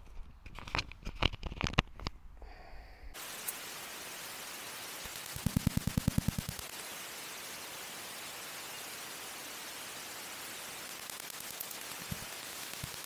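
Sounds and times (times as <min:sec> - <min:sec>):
bat detector hiss: 0:03.1 - 0:13.0
quick even crackle: 0:05.0 - 0:06.8, 0:10.8 - 0:13.0.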